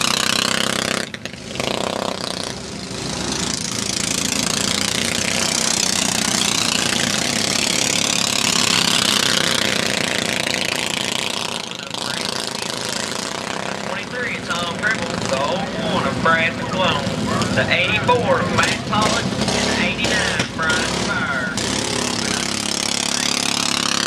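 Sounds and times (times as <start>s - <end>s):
racing karts passing: 0.0s - 24.0s.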